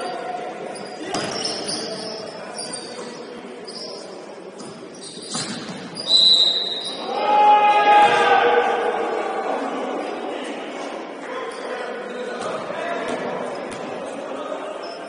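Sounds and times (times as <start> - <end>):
sneakers squeaking: 0.0 - 7.0, 11.5 - 15.0.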